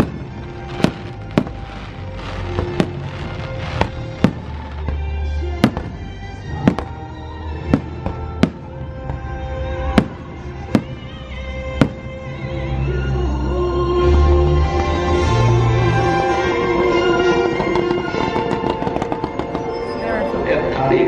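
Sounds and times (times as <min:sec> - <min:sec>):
firework shells bursting: 0:00.0 - 0:05.0
show music: 0:00.0 - 0:21.0.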